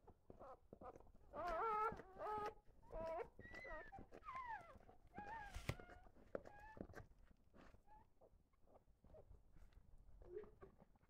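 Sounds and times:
dog whimpering: 0.8s - 6.8s.

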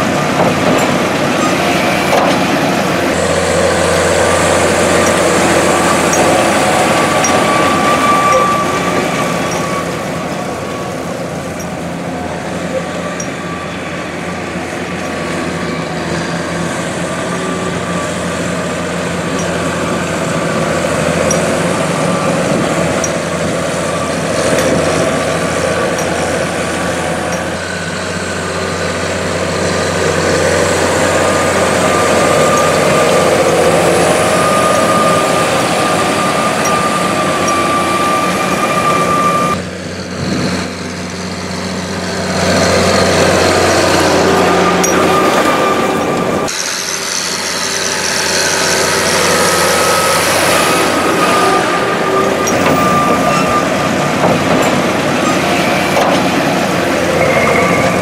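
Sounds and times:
tractor diesel engine under load: 0.0s - 58.0s
thin steady whine: 56.8s - 58.0s.

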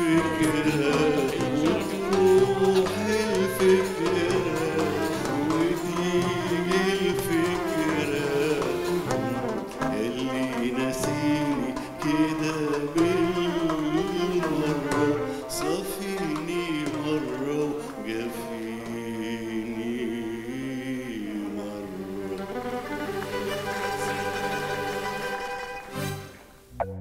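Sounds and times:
man singing into a microphone: 0.0s - 22.6s
violin: 0.0s - 26.7s.

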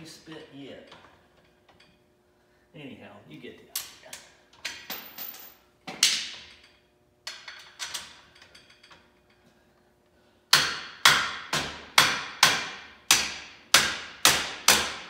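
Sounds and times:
hammer striking steel: 10.5s - 15.0s.

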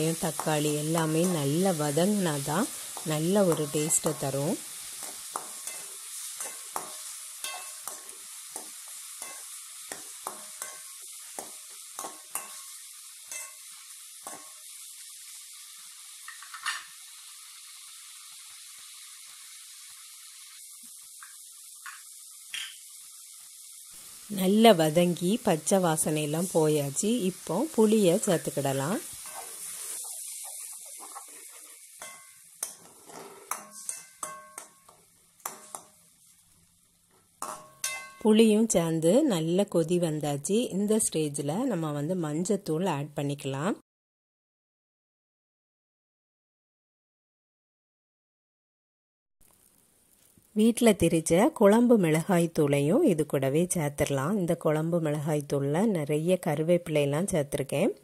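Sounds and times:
vegetables sizzling in oil: 0.0s - 43.8s, 49.4s - 58.0s
metal spoon scraping a pan: 2.7s - 14.7s, 28.4s - 36.0s, 37.4s - 38.2s.

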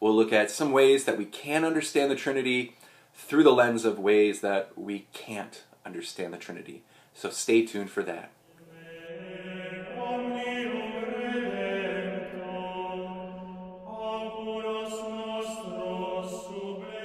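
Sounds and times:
chanted singing: 8.6s - 17.0s.

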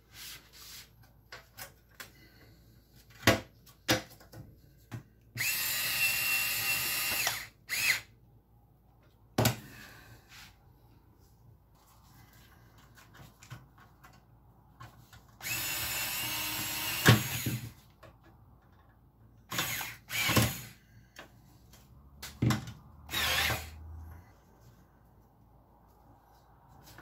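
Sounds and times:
drill-driver whirring against metal: 5.4s - 8.1s, 15.4s - 17.7s, 19.5s - 20.8s, 23.1s - 23.8s.

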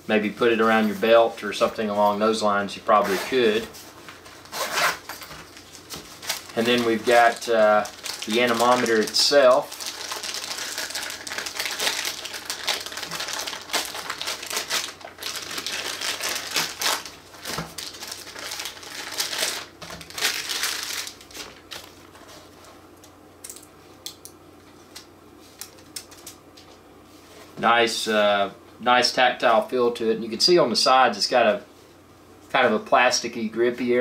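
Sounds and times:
plastic bag crinkling: 4.2s - 22.3s.

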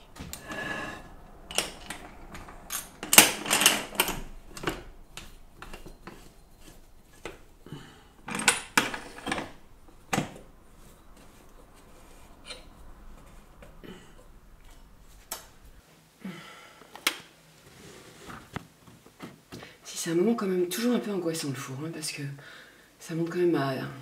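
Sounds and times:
hard objects clattering: 0.0s - 15.8s.

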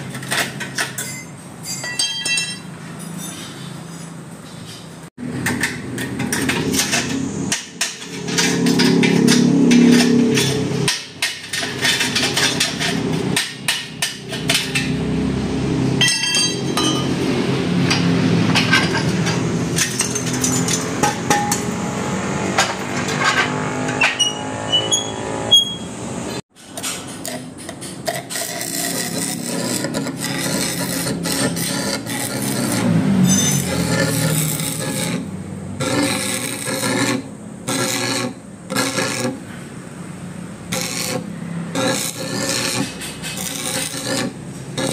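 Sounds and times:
metal scraping: 0.0s - 39.7s, 40.6s - 44.9s
high metallic ring: 1.0s - 4.2s, 16.0s - 17.3s, 24.0s - 26.0s.

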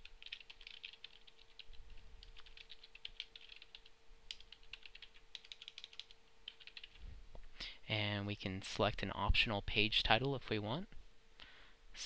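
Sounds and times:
computer keyboard typing: 0.0s - 7.0s
faint steady hum: 0.0s - 12.0s.

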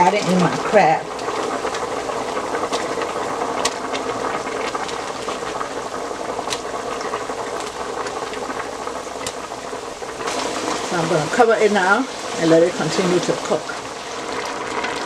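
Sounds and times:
broth bubbling: 0.0s - 15.0s.

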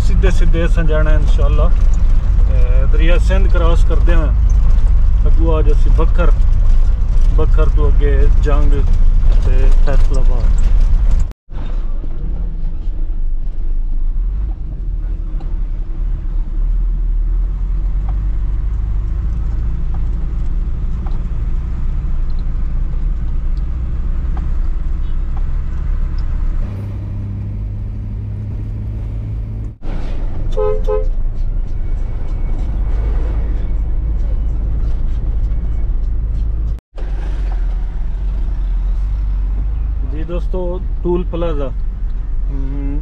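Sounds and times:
horn toots: 30.4s - 31.3s.

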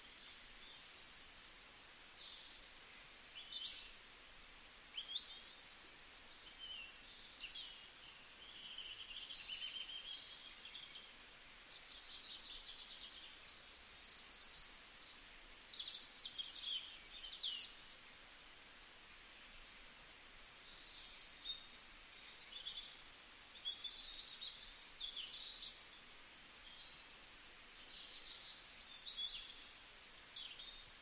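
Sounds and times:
faint steady hiss: 0.0s - 31.0s.

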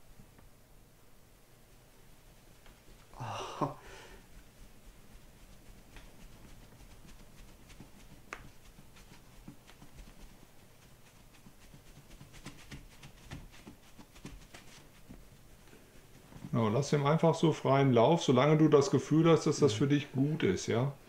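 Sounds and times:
fabric rustle: 1.6s - 17.6s
soft taps on exercise mat: 4.4s - 10.4s.

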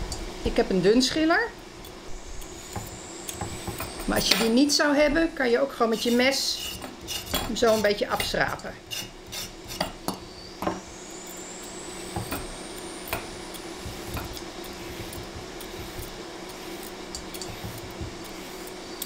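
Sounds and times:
faint high whine: 0.0s - 19.0s
steady low hum: 0.0s - 19.0s
carrot scraping: 5.7s - 10.1s, 12.0s - 19.0s.

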